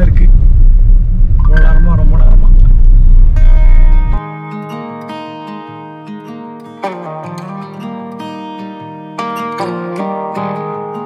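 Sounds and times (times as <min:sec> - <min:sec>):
loud low rumble: 0:00.0 - 0:04.2
plucked guitar music: 0:03.3 - 0:11.0.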